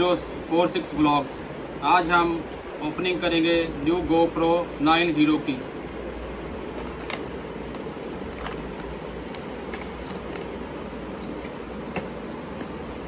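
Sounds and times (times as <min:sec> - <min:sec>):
paper bag rustling: 0:08.2 - 0:10.7, 0:12.4 - 0:13.0.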